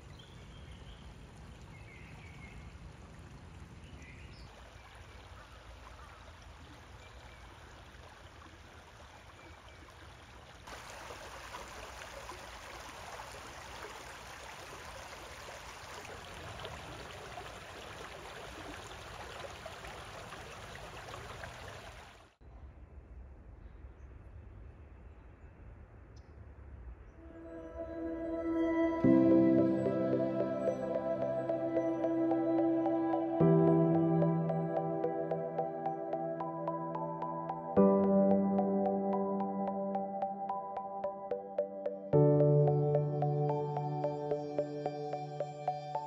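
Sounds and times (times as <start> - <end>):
creek water trickling over rocks: 0.0 - 22.4.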